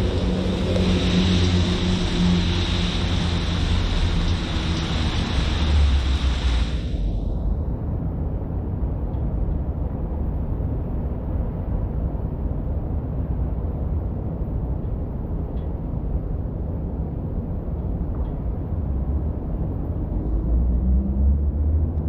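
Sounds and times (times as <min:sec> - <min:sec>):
faint rain hiss: 0:00.0 - 0:07.5
low rumble of wet city street: 0:00.0 - 0:22.0.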